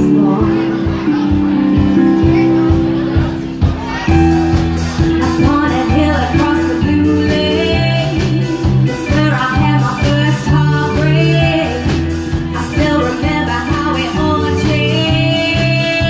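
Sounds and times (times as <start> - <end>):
woman singing: 0.0 - 1.2, 5.2 - 16.0
drums: 0.0 - 16.0
electric bass guitar: 0.0 - 16.0
keyboard playing: 0.0 - 16.0.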